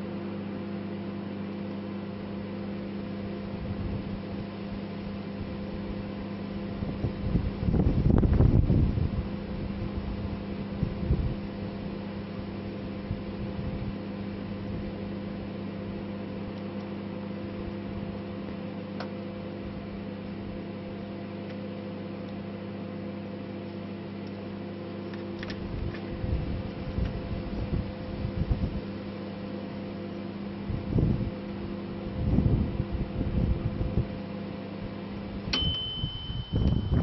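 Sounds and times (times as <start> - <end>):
microwave oven humming: 0.0 - 37.0
microwave click: 35.5 - 37.0.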